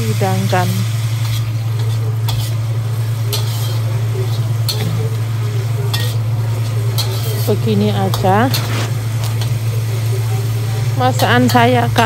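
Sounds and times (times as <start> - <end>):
spatula stirring in a wok: 0.0 - 12.0
spatula clinking against pan: 3.3 - 5.1.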